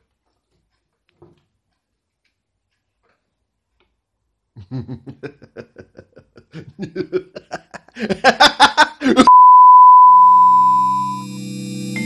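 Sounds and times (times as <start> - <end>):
steady electronic beep: 9.3 - 12.0.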